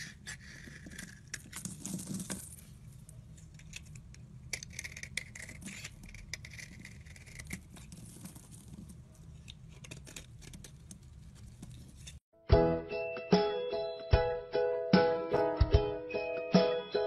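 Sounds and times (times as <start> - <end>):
knife scraping soap: 0.0 - 2.1, 3.5 - 12.2.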